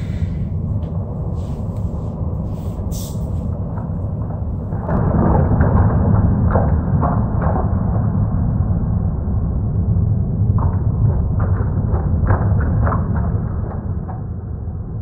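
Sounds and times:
deep rumbling drone: 0:00.0 - 0:15.0
short hisses: 0:02.5 - 0:03.5.

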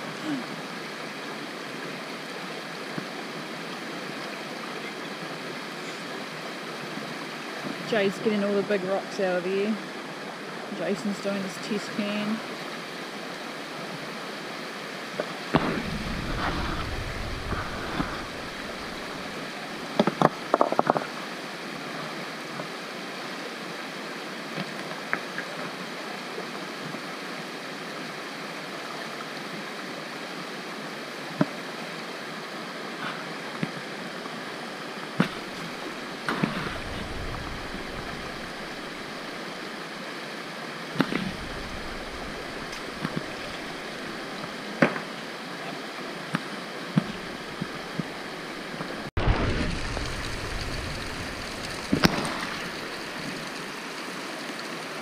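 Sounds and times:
creek running over rocks: 0:00.0 - 0:55.0
low sloshing rumbles: 0:15.6 - 0:19.5, 0:35.3 - 0:39.4, 0:41.0 - 0:44.6, 0:47.0 - 0:53.6.

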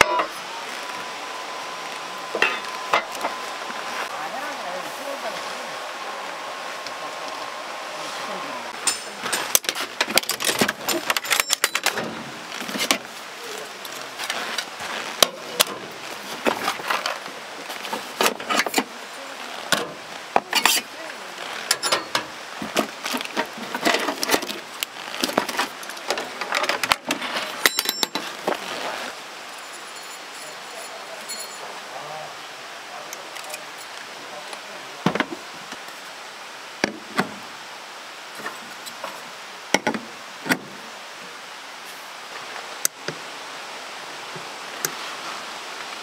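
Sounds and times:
steady background hiss: 0:00.0 - 0:46.0
hard objects clinking and clattering: 0:25.2 - 0:28.6.

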